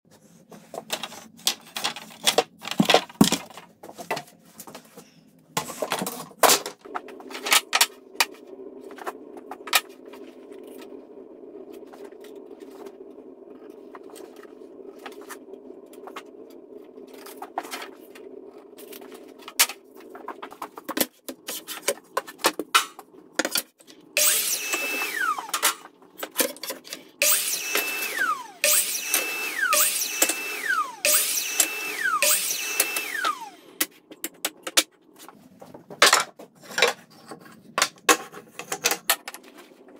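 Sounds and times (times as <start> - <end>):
low steady hum: 0.2 - 39.9
miter saw cutting: 24.2 - 25.8, 27.2 - 33.8.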